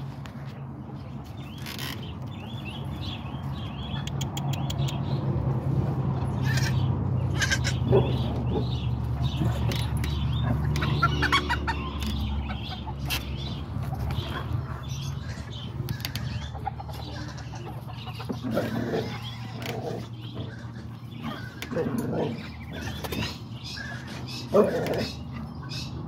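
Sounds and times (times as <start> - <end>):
chickens clucking: 6.1 - 26.0.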